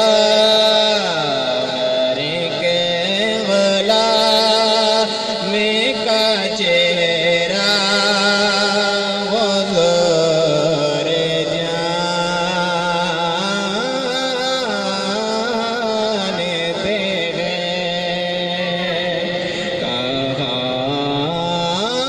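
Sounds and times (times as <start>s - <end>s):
man singing into a microphone: 0.0s - 22.0s.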